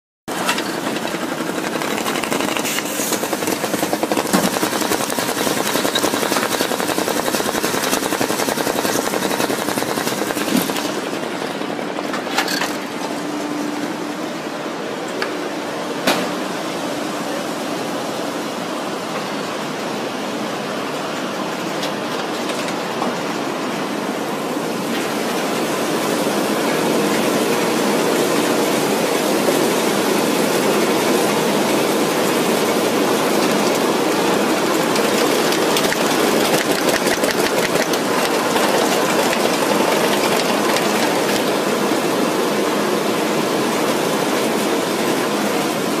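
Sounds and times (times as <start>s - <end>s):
letter sorting machine rushing: 0.3s - 13.2s, 24.8s - 46.0s
fast clicking of letters feeding: 0.6s - 11.0s, 34.9s - 41.1s.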